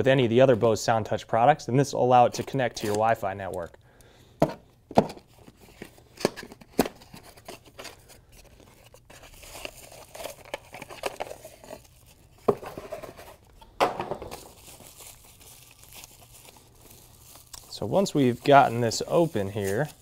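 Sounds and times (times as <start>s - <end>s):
plastic packaging rustling: 5.1s - 20.0s.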